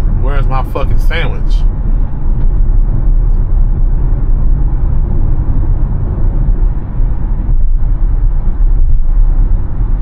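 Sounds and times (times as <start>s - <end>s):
road and tyre noise in car: 0.0s - 10.0s.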